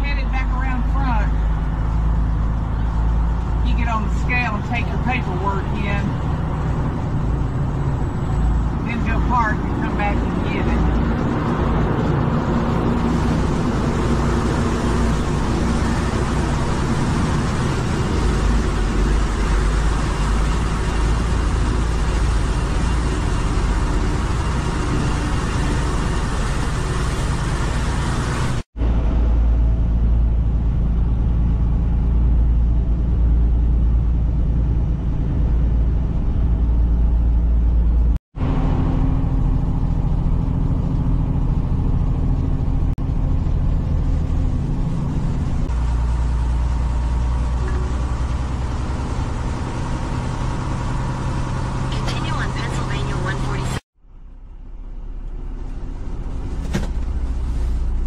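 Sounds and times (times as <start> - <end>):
truck engine drone: 0.0 - 58.0
tyre and road noise: 0.0 - 58.0.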